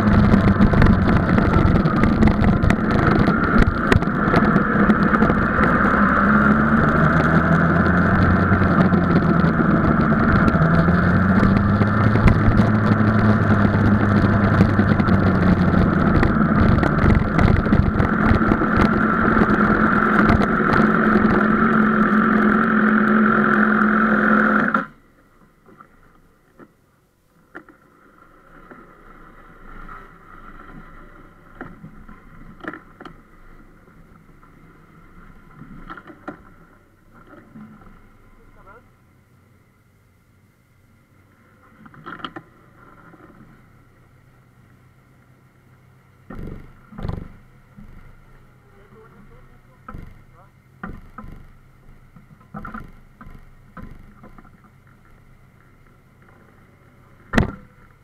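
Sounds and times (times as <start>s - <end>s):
motorcycle engine running at low revs: 0.0s - 25.0s, 46.2s - 58.0s.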